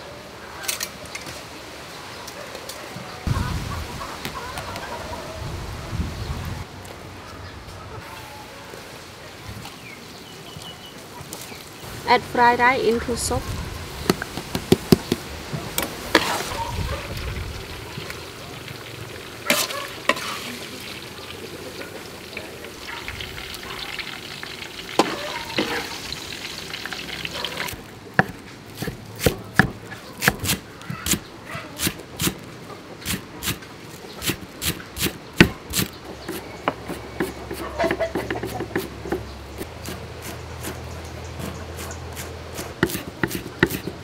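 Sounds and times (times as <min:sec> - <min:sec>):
cleaver chopping on wooden board: 0:28.2 - 0:31.2, 0:42.2 - 0:44.0.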